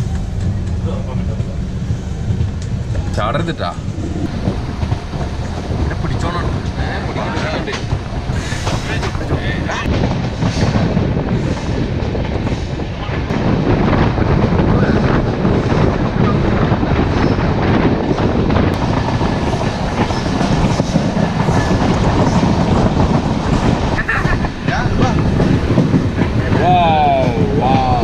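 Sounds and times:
train wheels rumbling and rattling: 0:00.0 - 0:28.0
wheels clacking over rail joints: 0:02.2 - 0:28.0.

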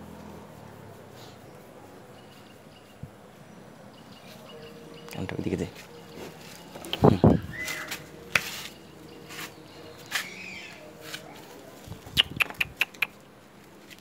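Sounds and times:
hooves on concrete: 0:05.7 - 0:14.0.

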